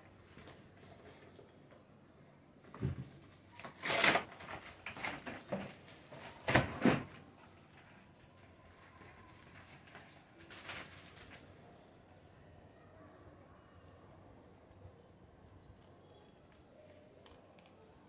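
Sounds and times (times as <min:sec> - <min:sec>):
cardboard packaging rustling: 0:03.6 - 0:11.6
plastic bag crinkling: 0:07.8 - 0:11.6.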